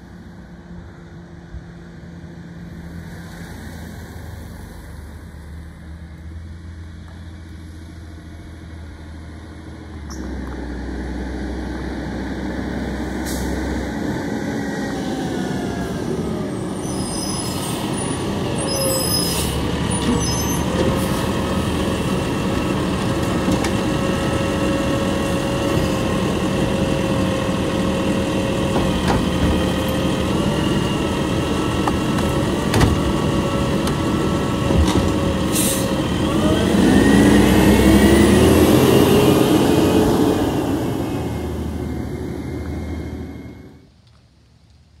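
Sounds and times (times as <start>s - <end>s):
garbage truck diesel engine: 0.0s - 44.0s
constant whine: 19.9s - 45.0s.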